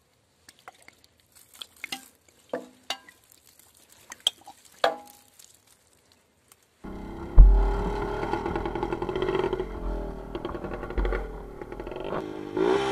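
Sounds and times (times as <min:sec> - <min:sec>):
plastic bottle clicking and crackling: 0:04.1 - 0:05.6
sharp knocks: 0:07.2 - 0:12.2.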